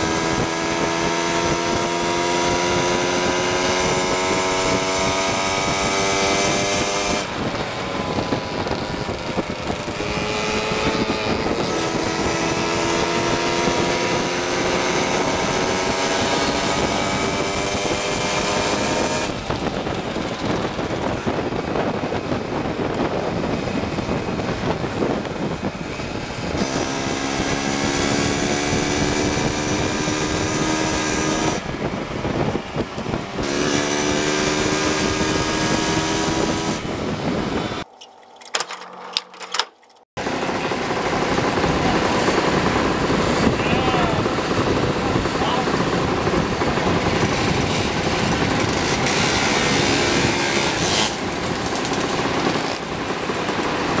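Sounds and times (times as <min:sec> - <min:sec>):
wind rushing: 0:34.4 - 0:38.5.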